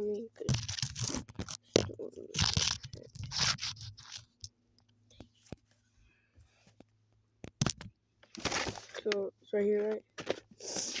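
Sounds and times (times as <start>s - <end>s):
packaging ripping: 0.5s - 1.7s, 2.3s - 4.3s
small clicks and taps: 6.8s - 8.3s.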